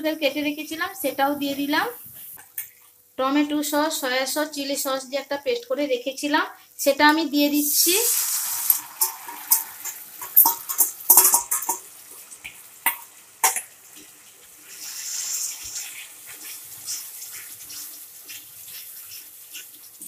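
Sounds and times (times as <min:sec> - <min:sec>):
sauce sizzling: 0:07.4 - 0:20.0.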